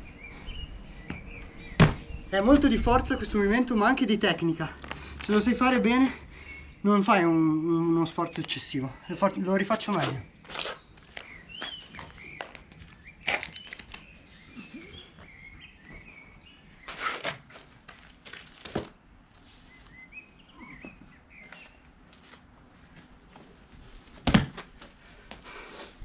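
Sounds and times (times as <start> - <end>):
small birds chirping: 0.0 - 17.3, 19.4 - 22.0
shoes scuffing on concrete wall: 1.0 - 2.1, 9.8 - 13.1, 20.8 - 25.5.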